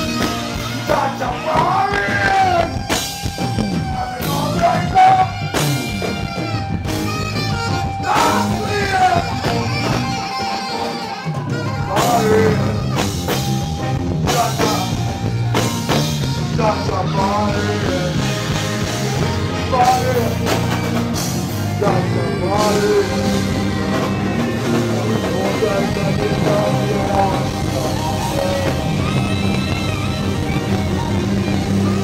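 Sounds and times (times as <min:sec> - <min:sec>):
person singing: 0:00.0 - 0:13.5, 0:14.2 - 0:32.0
drum kit: 0:00.0 - 0:32.0
electric guitar: 0:00.0 - 0:32.0
saxophone: 0:00.0 - 0:32.0.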